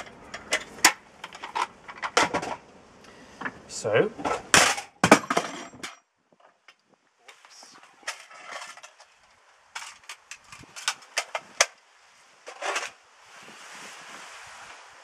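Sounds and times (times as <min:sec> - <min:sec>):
soft steady rustle: 0:05.6 - 0:15.0.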